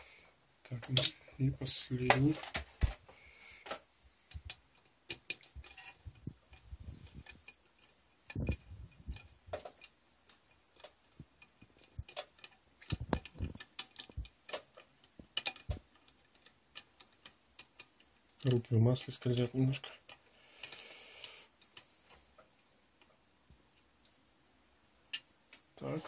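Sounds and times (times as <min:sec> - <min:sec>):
metal parts being handled: 0:03.6 - 0:20.2.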